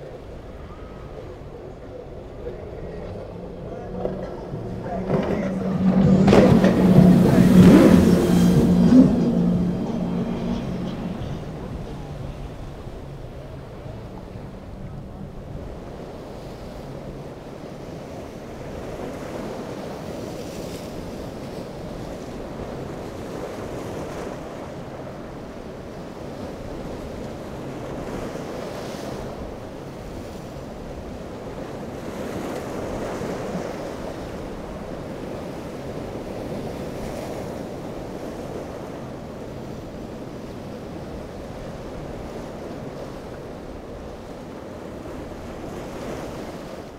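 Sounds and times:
outboard engines humming: 0.0s - 46.9s
waves breaking: 0.0s - 46.9s
wind buffeting microphone: 0.0s - 46.9s.

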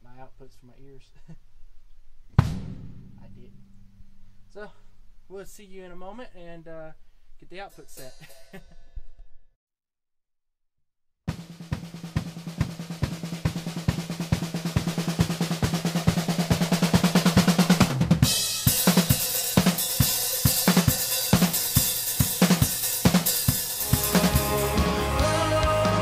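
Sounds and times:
drum strokes: 2.3s - 4.5s, 11.3s - 26.0s
full drum kit beat: 2.3s - 4.8s, 7.7s - 8.6s, 11.3s - 26.0s.

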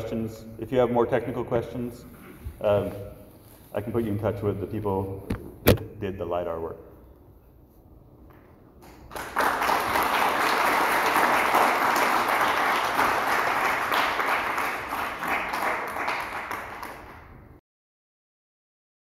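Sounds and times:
audience applauding: 8.8s - 17.5s.

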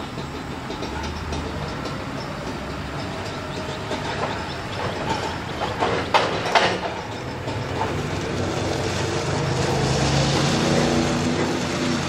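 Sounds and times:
metal clanks and rattles: 0.0s - 9.5s
diesel engine running: 7.1s - 12.0s.

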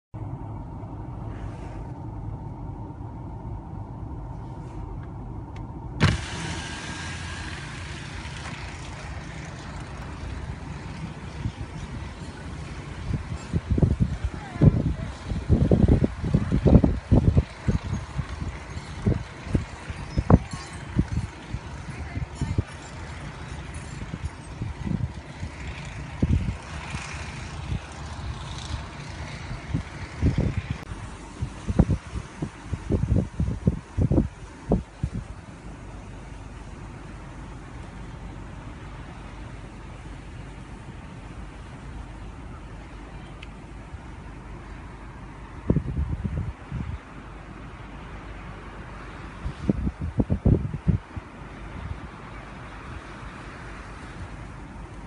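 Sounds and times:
hiss of wind: 0.2s - 55.0s
wind buffeting microphone: 0.3s - 42.2s, 43.9s - 55.0s
low thumps from gusts: 2.1s - 35.7s.

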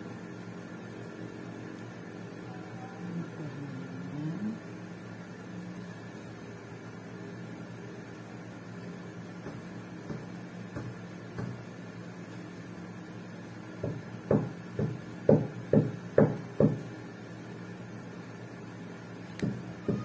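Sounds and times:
knocks on hard tabletop: 9.4s - 11.6s, 13.8s - 16.9s.

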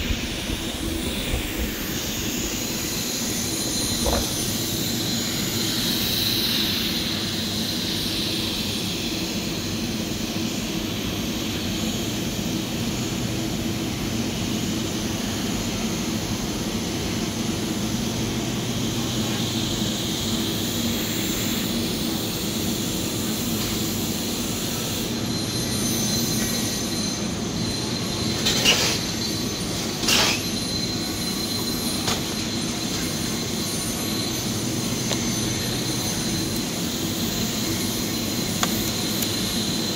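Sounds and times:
machinery drone: 0.0s - 9.0s, 15.5s - 39.9s
welding hum and hiss: 0.0s - 39.9s.

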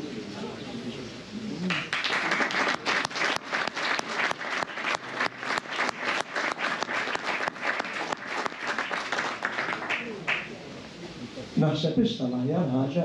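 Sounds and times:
audience applauding: 1.7s - 10.7s.

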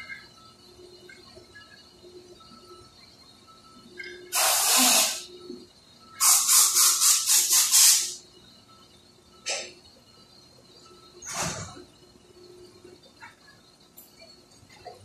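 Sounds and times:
pressurised air hissing in bursts: 4.3s - 5.3s, 6.2s - 8.2s.

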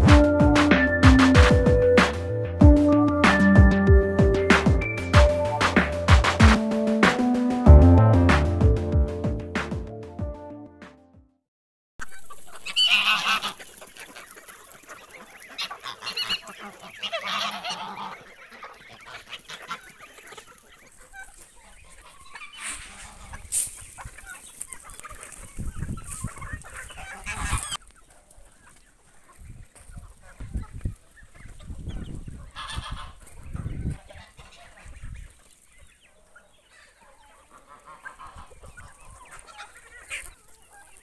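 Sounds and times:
chickens clucking: 0.0s - 7.3s, 12.0s - 41.0s
geese honking: 12.0s - 41.0s.

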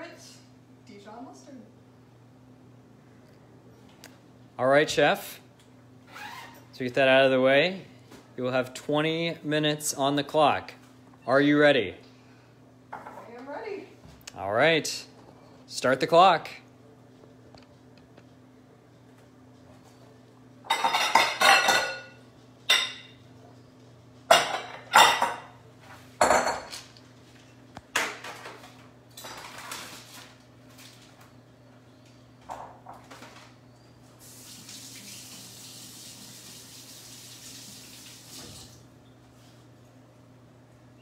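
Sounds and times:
dishes and utensils clattering: 20.7s - 23.2s, 24.3s - 25.6s, 28.0s - 30.2s.

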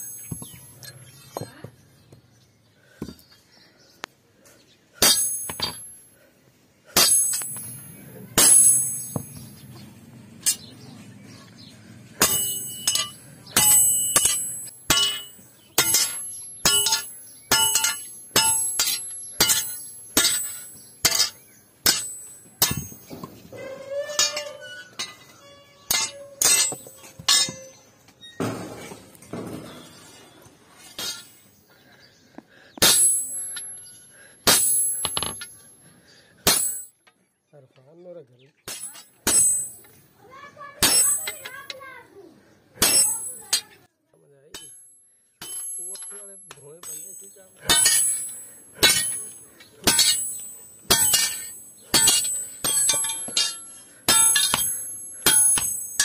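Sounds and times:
hammer striking chisel on metal: 5.0s - 5.9s, 7.0s - 7.8s, 12.2s - 27.8s, 32.8s - 33.9s, 34.5s - 35.6s, 38.7s - 39.9s, 42.8s - 43.7s, 44.5s - 56.0s.

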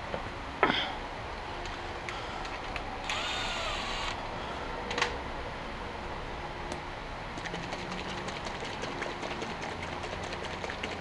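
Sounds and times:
power ratchet motor whirring: 3.0s - 4.2s.

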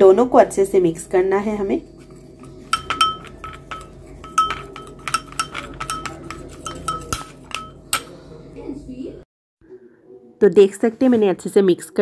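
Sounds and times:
spoon clinking against bowl: 2.4s - 8.2s.

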